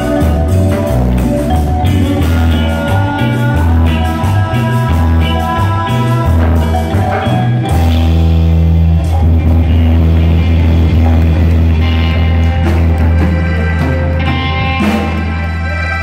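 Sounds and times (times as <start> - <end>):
live band through speakers: 0.0 - 16.0
steady bass notes: 0.0 - 16.0
saxophones: 9.0 - 16.0.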